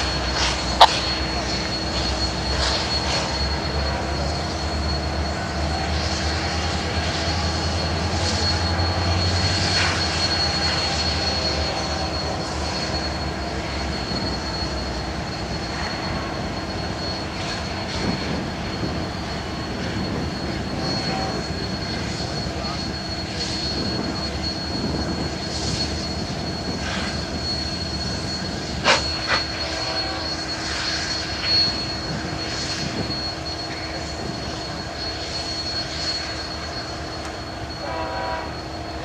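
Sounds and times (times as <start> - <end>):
high whine: 0.0 - 39.0
locomotive engine idling rumble: 0.0 - 39.0
steam hissing: 17.3 - 37.2.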